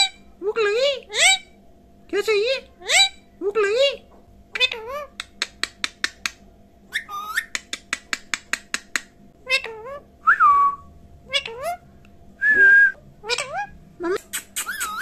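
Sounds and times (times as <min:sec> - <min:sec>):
parakeet clicking: 0:05.2 - 0:06.4, 0:07.4 - 0:09.2
parakeet whistling: 0:06.9 - 0:07.6, 0:14.6 - 0:15.0.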